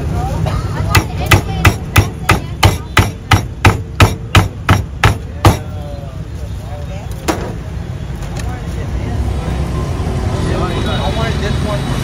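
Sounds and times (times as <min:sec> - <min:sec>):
sharp knocks: 0:00.9 - 0:05.7.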